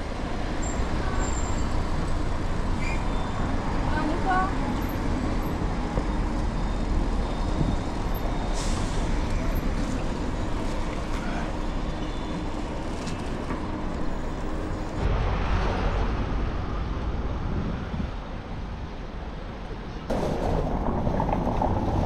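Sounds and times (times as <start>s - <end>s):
road noise: 0.0s - 22.0s
traffic: 0.0s - 22.0s
wind buffeting microphone: 15.0s - 22.0s.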